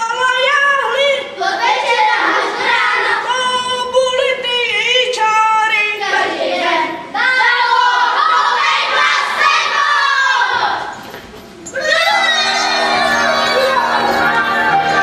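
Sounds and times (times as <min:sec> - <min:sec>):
children singing: 0:00.8 - 0:04.3, 0:05.9 - 0:11.0, 0:11.7 - 0:15.0.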